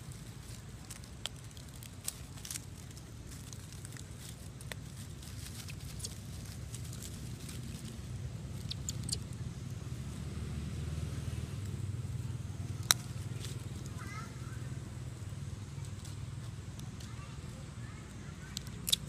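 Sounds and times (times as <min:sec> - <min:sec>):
low engine rumble: 0:00.0 - 0:19.0
faint sharp clicks: 0:18.5 - 0:19.0.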